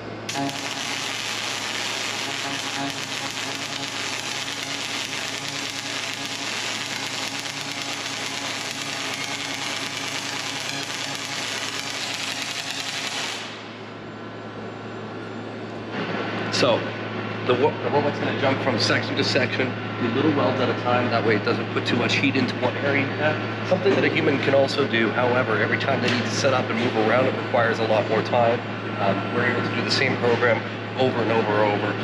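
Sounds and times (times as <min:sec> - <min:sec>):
welding arc crackling: 0:00.0 - 0:13.8.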